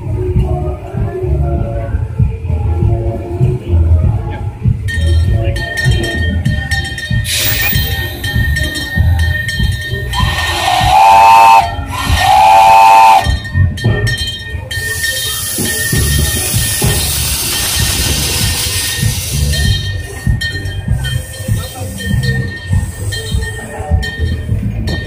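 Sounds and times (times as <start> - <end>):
steam locomotive whistle blasts: 7.3 - 9.0, 10.1 - 13.5.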